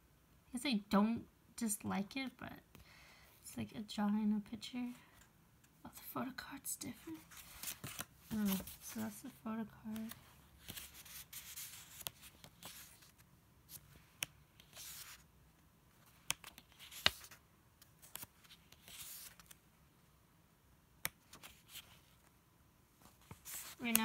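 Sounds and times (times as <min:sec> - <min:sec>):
paper pages rustling: 0:07.0 - 0:09.3, 0:09.9 - 0:15.3, 0:15.9 - 0:19.6, 0:21.0 - 0:22.3, 0:23.0 - 0:24.0.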